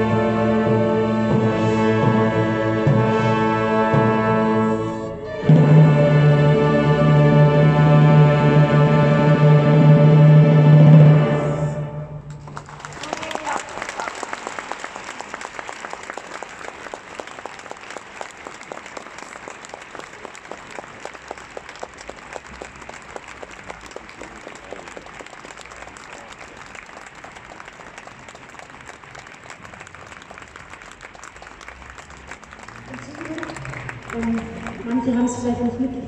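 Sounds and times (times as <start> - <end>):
audience applauding: 12.3 - 35.4.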